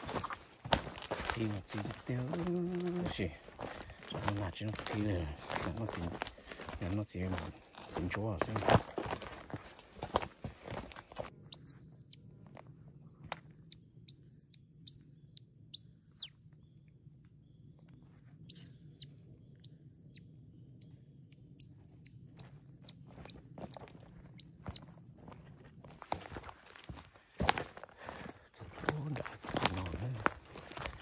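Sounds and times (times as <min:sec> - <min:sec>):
bird whistling: 0:11.5 - 0:12.3, 0:13.3 - 0:16.4, 0:18.5 - 0:24.9.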